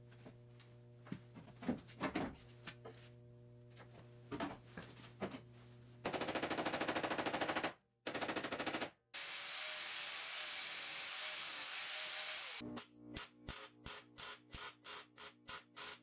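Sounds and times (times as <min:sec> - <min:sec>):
angle grinder grinding metal: 0:09.2 - 0:12.6.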